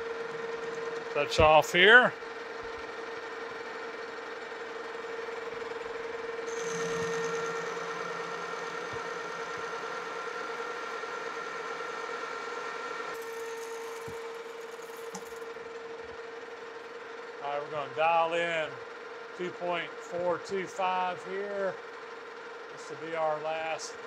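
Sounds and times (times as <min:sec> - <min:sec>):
lathe humming: 0:02.2 - 0:16.7
lathe tool cutting metal: 0:06.4 - 0:15.5.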